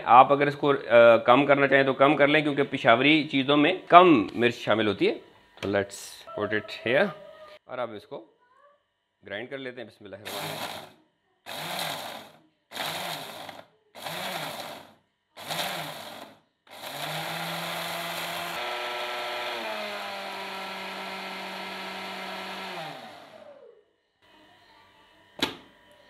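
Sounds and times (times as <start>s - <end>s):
electric spice grinder grinding: 10.3s - 23.6s.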